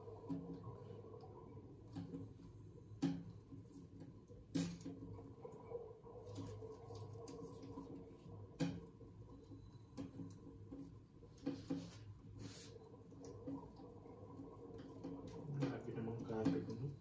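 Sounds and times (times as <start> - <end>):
taps and clicks on glass tank: 3.0 - 3.4.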